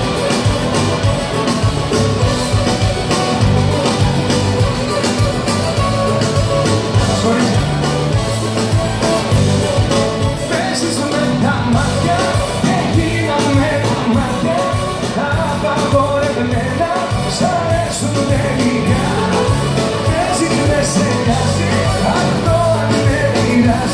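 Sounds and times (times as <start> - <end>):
live band playing pop song: 0.0 - 23.9
man singing: 6.9 - 8.2, 10.4 - 23.9.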